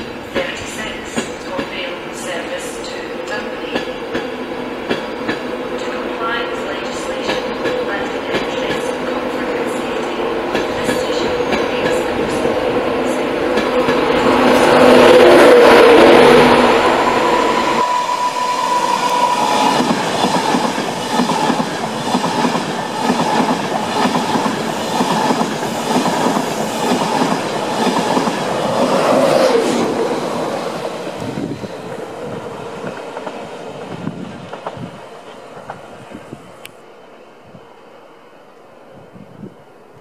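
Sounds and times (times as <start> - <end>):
train wheels rushing on rails: 0.0 - 36.7
wheels clickety-clack over rail joints: 32.2 - 35.0.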